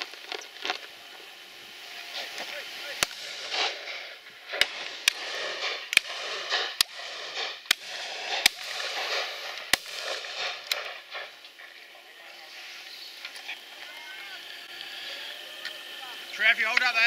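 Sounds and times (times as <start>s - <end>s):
shotguns firing: 2.2s - 11.8s.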